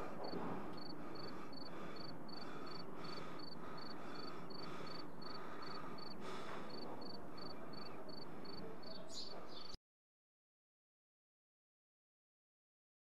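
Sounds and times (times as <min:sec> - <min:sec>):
cricket chirping: 0:00.2 - 0:08.6.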